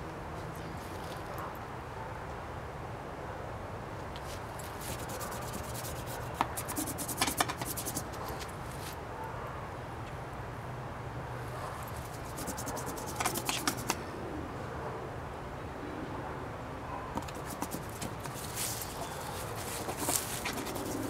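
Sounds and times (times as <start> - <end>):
steady outdoor hiss: 0.0 - 21.0
paintbrush scratching on board: 4.6 - 8.4, 12.0 - 14.0, 17.2 - 21.0
rustling of movement: 17.3 - 21.0.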